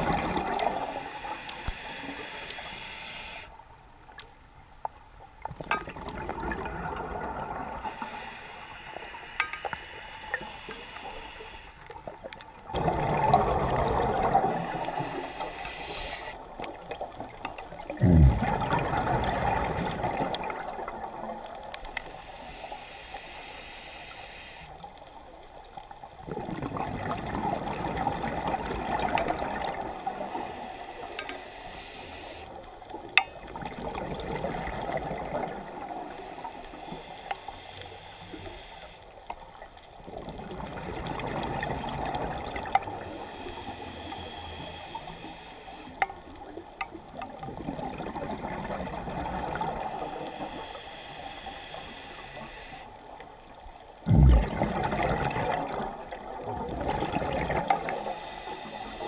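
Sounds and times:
exhalation bubbles gurgling: 0:00.0 - 0:01.0, 0:05.5 - 0:08.1, 0:12.0 - 0:15.6, 0:16.4 - 0:21.7, 0:26.2 - 0:30.4, 0:33.4 - 0:36.2, 0:40.0 - 0:43.9, 0:46.4 - 0:50.3, 0:54.0 - 0:58.2
regulator breathing underwater: 0:00.1 - 0:03.6, 0:07.7 - 0:11.9, 0:14.0 - 0:16.5, 0:22.0 - 0:24.8, 0:29.8 - 0:32.6, 0:35.8 - 0:39.1, 0:42.9 - 0:46.1, 0:49.6 - 0:53.0, 0:57.7 - 0:59.0
faint clicks: 0:00.4 - 0:06.2, 0:07.9 - 0:12.7, 0:21.4 - 0:26.0, 0:29.1 - 0:33.6, 0:36.1 - 0:40.3, 0:42.6 - 0:47.8.

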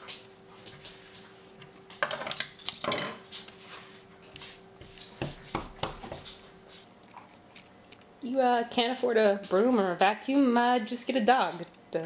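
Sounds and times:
hand brushing crumbs on wood: 0:03.6 - 0:06.9.

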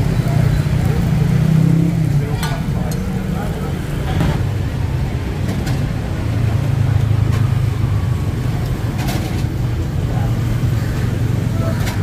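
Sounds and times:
heavy vehicle engine: 0:00.0 - 0:12.0
road traffic rumbling: 0:00.0 - 0:12.0.

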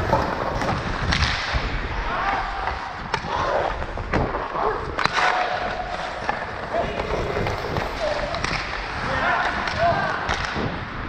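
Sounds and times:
hockey stick clacking puck: 0:00.0 - 0:01.6, 0:04.9 - 0:10.6
skates scraping on ice: 0:00.0 - 0:10.8.

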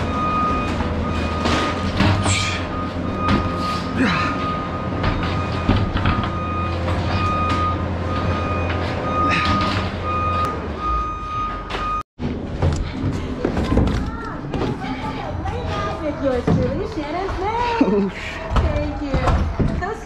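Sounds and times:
reversing alarm beeping: 0:00.0 - 0:12.0
knocks and clatter of work: 0:00.0 - 0:20.0.

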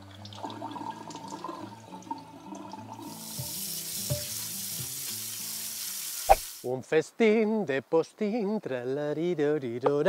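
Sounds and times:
background music: 0:00.0 - 0:06.7.

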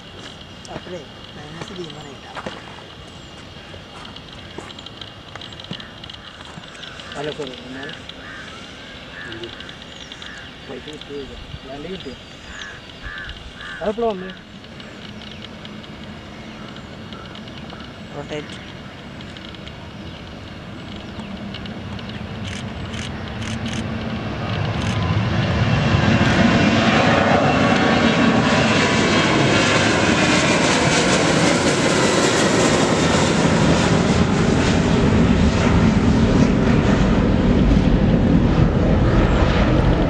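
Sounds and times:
jet engines at takeoff: 0:00.0 - 0:40.0.

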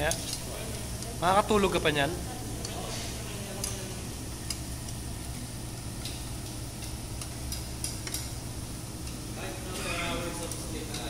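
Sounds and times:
metal tongs clicking on dishes: 0:02.6 - 0:02.8, 0:03.5 - 0:03.8, 0:04.4 - 0:05.0, 0:06.0 - 0:08.4, 0:10.4 - 0:11.0.

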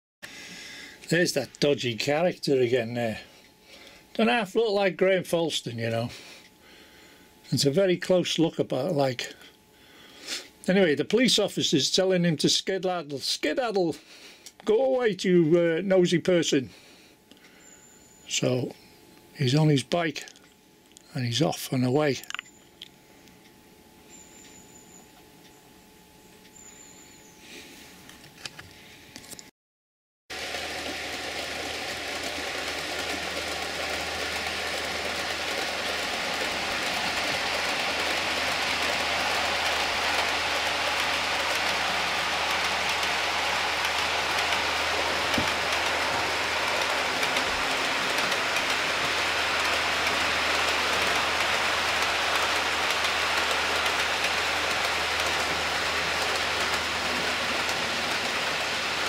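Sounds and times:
low hum: 0:30.4 - 0:59.0
model train wheels rattling: 0:30.4 - 0:59.0.

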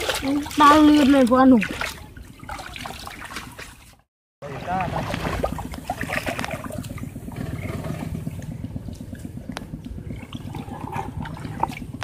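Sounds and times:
light water splashes: 0:00.0 - 0:12.0
low pulsing rumble: 0:04.4 - 0:12.0.

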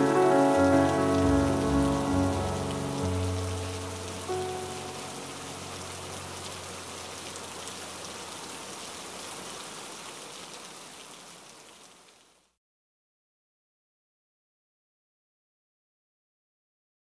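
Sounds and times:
background music: 0:00.0 - 0:06.4
steady rain falling: 0:00.0 - 0:12.6.

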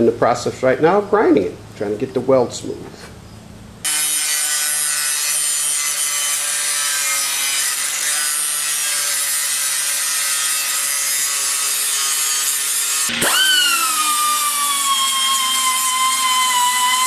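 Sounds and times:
angle grinder grinding steel: 0:03.8 - 0:17.0.

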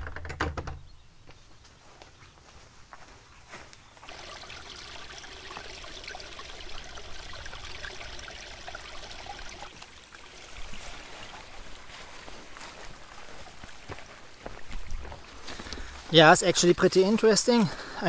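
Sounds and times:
small stream trickling: 0:04.0 - 0:17.7.

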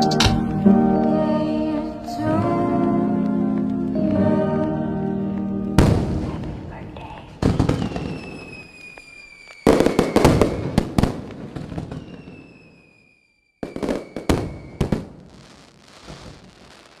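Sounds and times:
fireworks bangs and crackling: 0:05.6 - 0:17.0
faint falling whistle: 0:07.5 - 0:10.8, 0:11.8 - 0:14.9.

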